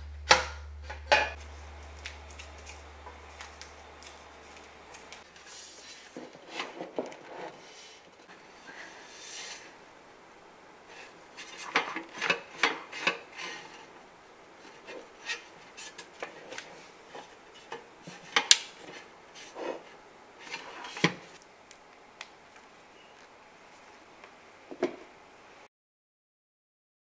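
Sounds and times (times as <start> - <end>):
cables rubbing and sliding: 0.8 - 9.8, 14.6 - 21.4.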